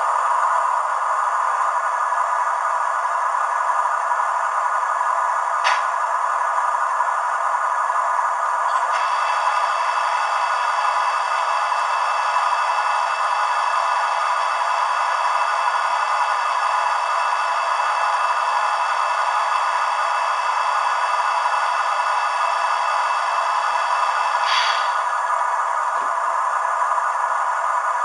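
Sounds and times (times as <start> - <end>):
air compressor sound from small speaker: 8.7 - 19.2, 20.7 - 26.2
short hiss: 24.4 - 25.0.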